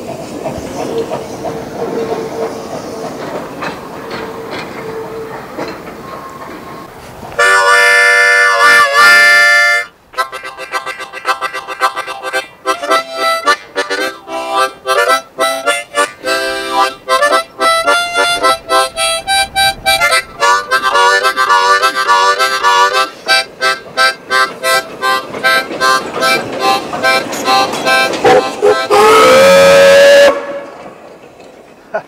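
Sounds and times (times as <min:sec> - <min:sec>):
harmonica playing: 0:07.4 - 0:30.5.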